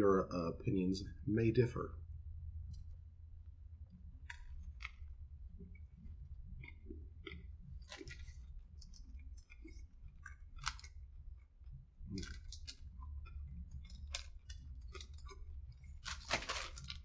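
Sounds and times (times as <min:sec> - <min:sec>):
low steady hum: 0:00.0 - 0:17.0
person chewing crunchy food: 0:04.2 - 0:17.0.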